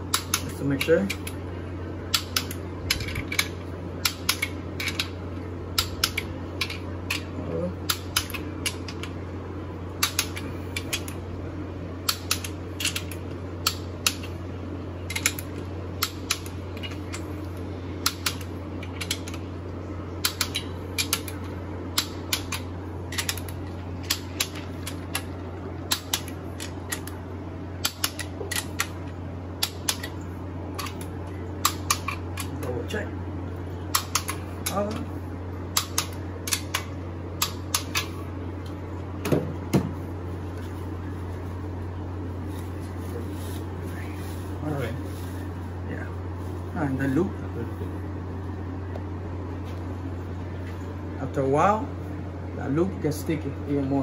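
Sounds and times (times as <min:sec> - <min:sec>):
torque wrench clicking: 0:10.0 - 0:11.2.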